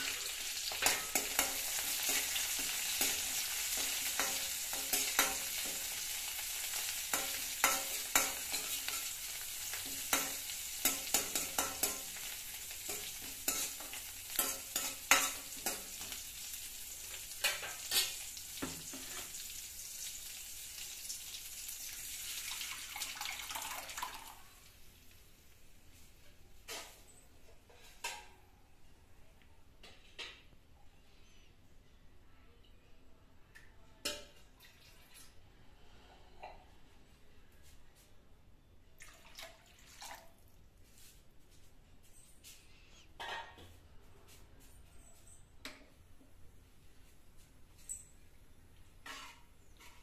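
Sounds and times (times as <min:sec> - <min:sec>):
leaves and chillies sizzling in oil: 0:00.0 - 0:26.9
liquid poured into pan: 0:21.1 - 0:24.5.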